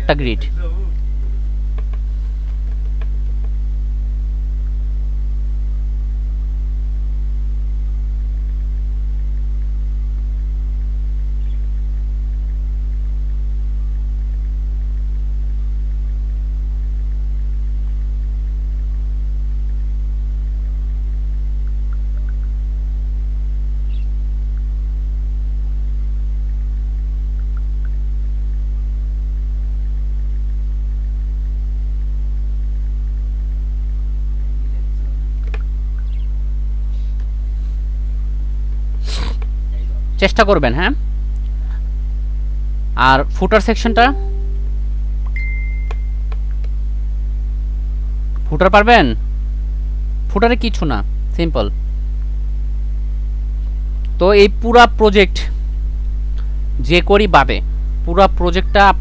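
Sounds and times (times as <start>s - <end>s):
electrical mains hum: 0.0s - 59.0s.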